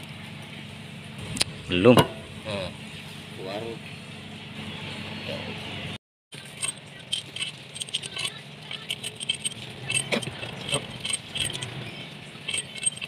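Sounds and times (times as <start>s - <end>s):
metal tools clinking and rattling: 6.4s - 13.0s.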